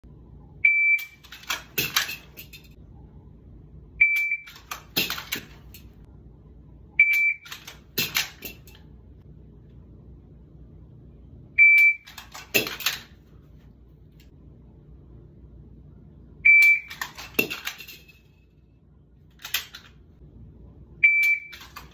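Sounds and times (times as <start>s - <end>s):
shot timer beeps: 0.6s - 1.2s, 4.0s - 4.5s, 7.0s - 7.5s, 11.6s - 12.1s, 16.5s - 16.9s, 21.0s - 21.6s.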